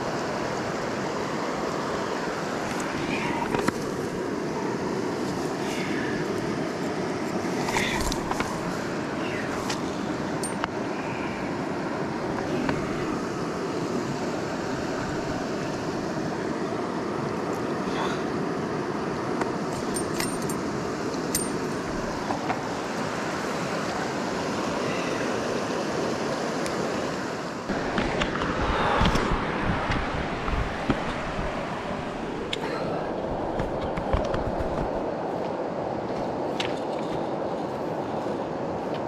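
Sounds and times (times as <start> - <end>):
river water running over stones: 0.0 - 39.0
wind rumble on microphone: 26.9 - 39.0.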